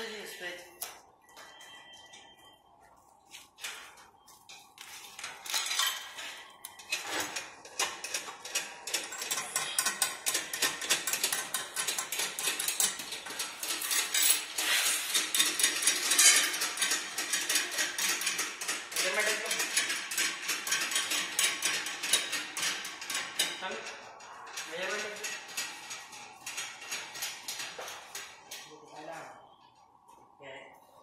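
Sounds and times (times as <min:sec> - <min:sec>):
metal and plastic parts rattling: 0:05.2 - 0:28.7.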